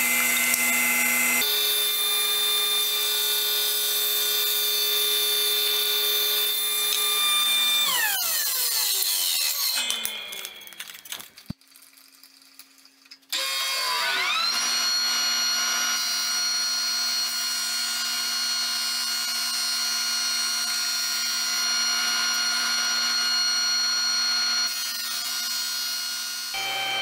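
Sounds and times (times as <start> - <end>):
drum sander motor whine and hum: 13.5 - 24.8, 26.3 - 27.0.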